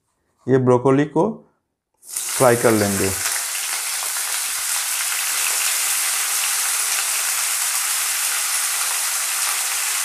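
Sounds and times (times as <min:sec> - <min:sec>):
vegetables sizzling in hot oil: 0:02.0 - 0:10.0.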